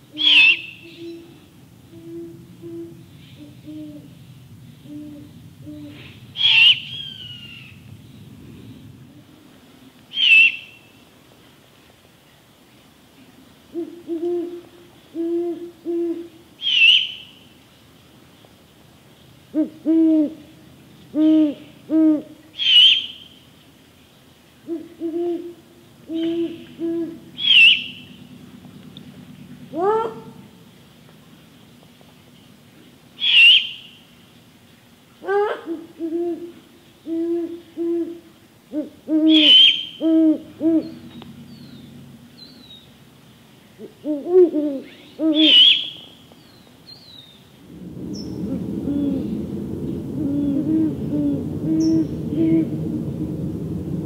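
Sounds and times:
owl deep hoots: 0:00.1 - 0:09.4, 0:24.6 - 0:30.6, 0:35.2 - 0:42.8, 0:43.8 - 0:46.0, 0:47.6 - 0:54.0.

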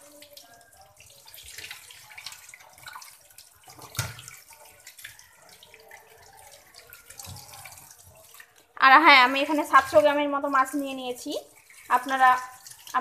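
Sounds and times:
tap water running into sink: 0:00.0 - 0:13.0
splashing and small clicks: 0:00.2 - 0:08.8.

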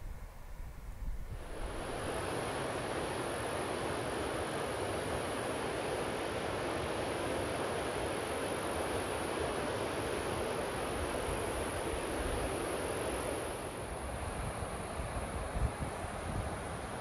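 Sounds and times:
wind rumble on microphone: 0:00.0 - 0:02.1, 0:14.2 - 0:17.0.

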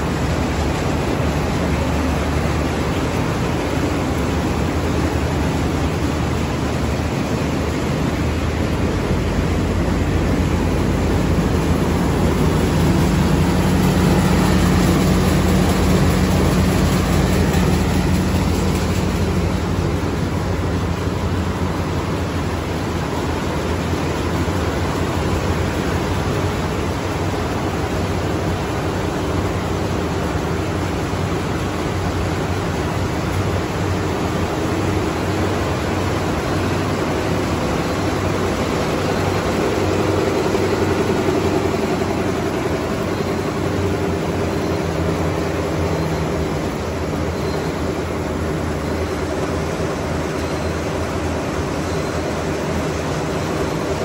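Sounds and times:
combine harvester mechanical drone: 0:00.0 - 0:54.0.

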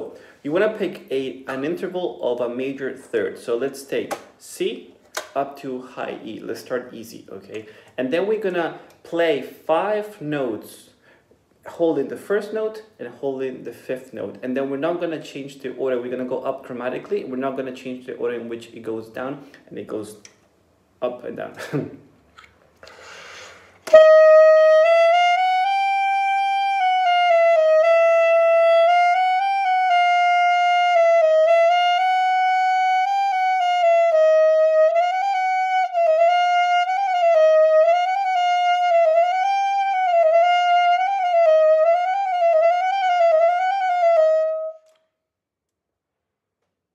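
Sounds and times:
alto saxophone playing high notes: 0:23.2 - 0:45.0.

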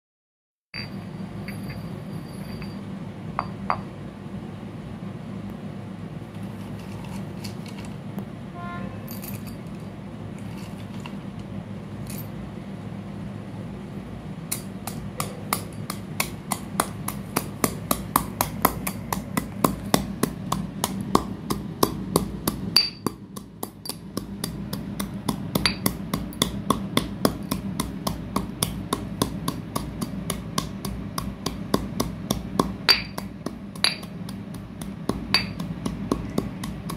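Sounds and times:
pestle crushing in stone mortar: 0:14.5 - 0:36.9.

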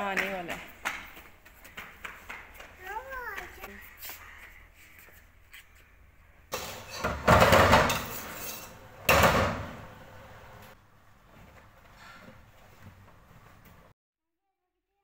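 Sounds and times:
metal spoon scraping in pot: 0:08.0 - 0:08.8.

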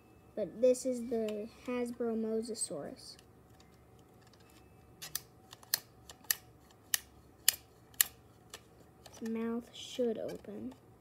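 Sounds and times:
plastic toy joints clicking: 0:03.2 - 0:09.4.

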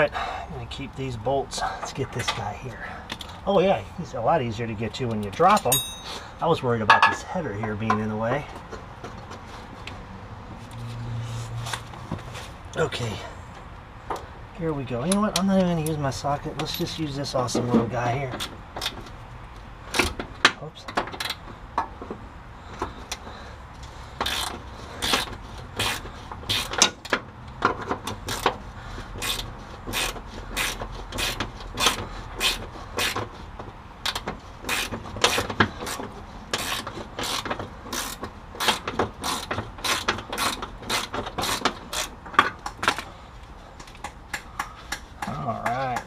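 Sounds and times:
ratchet wrench clicking: 0:24.2 - 0:26.9, 0:36.6 - 0:42.1.

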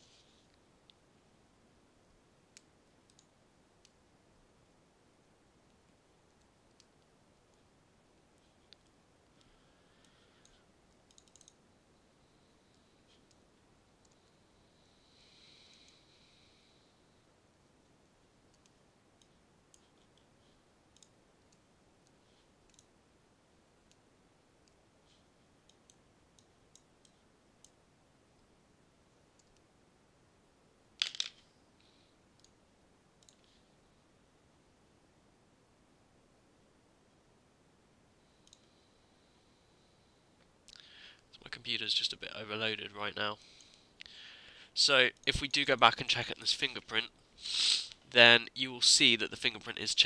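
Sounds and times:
low hiss: 0:00.0 - 0:50.0
computer mouse clicks: 0:02.6 - 0:04.0, 0:08.7 - 0:11.6, 0:18.5 - 0:20.3, 0:20.9 - 0:22.9, 0:25.6 - 0:27.8, 0:29.4 - 0:29.7, 0:32.4 - 0:32.6, 0:33.2 - 0:33.5, 0:38.4 - 0:38.7.

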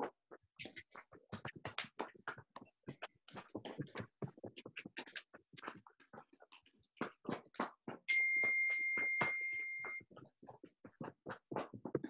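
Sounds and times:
high ringing tone: 0:08.1 - 0:10.0
hands slapping legs: 0:08.7 - 0:12.0.

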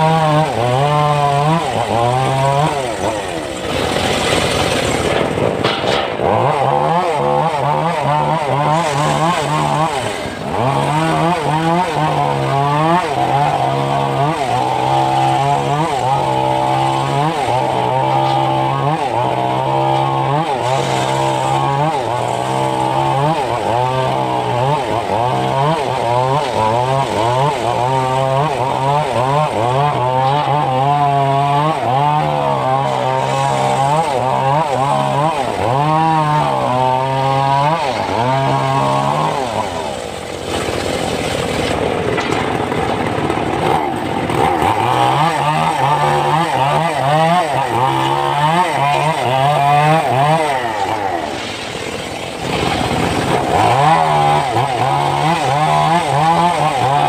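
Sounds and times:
circular saw blade cutting log: 0:00.0 - 0:57.0.

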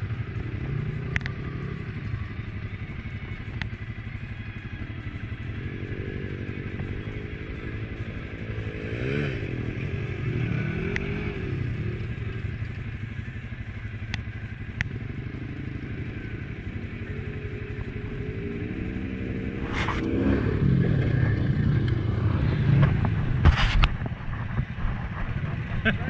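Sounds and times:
sharp ticks: 0:00.0 - 0:04.3, 0:10.5 - 0:20.2
off-road vehicle engine revving: 0:00.0 - 0:24.1
atv engine idling: 0:00.0 - 0:26.0.

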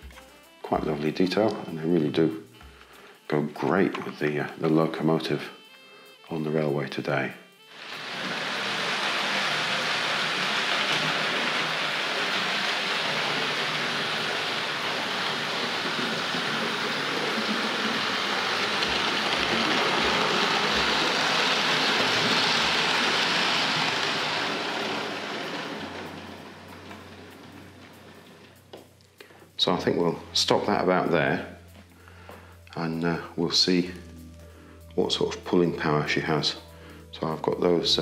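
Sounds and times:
model train rolling rattle: 0:07.8 - 0:28.6.

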